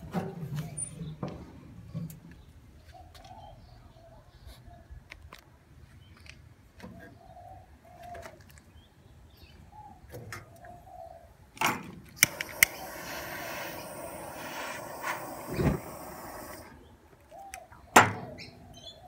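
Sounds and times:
grill lighter clicks: 12.2 - 16.7
gas burner hissing: 12.2 - 16.8.

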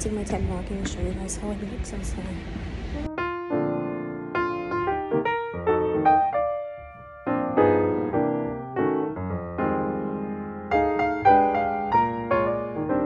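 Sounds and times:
gentle piano music: 3.0 - 13.0.

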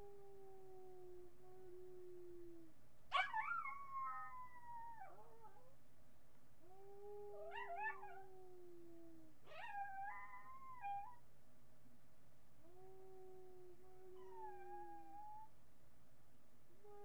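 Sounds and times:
dog howling: 7.3 - 8.3.

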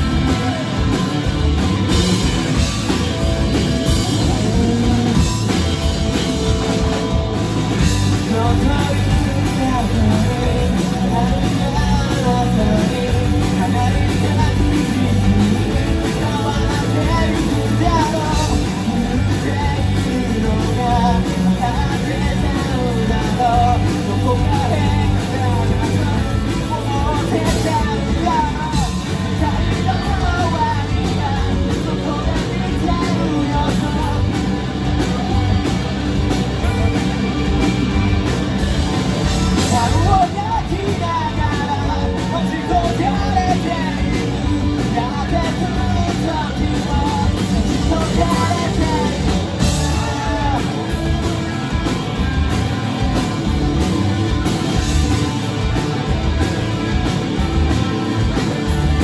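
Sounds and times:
bass guitar: 0.0 - 59.0
distorted electric guitars: 0.0 - 59.0
drums: 0.0 - 59.0
man singing: 1.9 - 35.6, 39.2 - 51.7.

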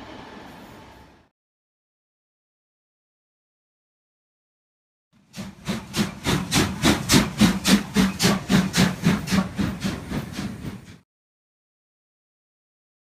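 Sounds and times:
steam locomotive chuffing: 5.2 - 11.0.

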